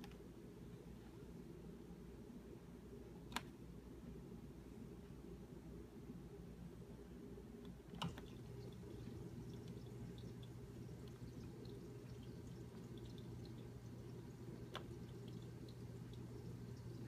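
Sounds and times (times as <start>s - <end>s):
dishwasher humming: 7.9s - 17.0s
water trickling and dripping: 8.0s - 17.0s.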